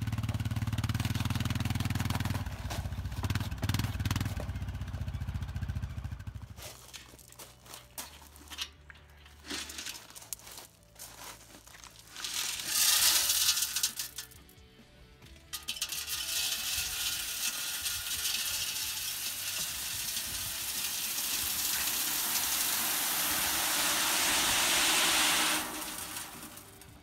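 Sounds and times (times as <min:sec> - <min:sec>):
atv engine running: 0:00.0 - 0:07.1, 0:14.6 - 0:23.6
gravel rushing and rattling out: 0:09.3 - 0:14.4, 0:15.8 - 0:27.0.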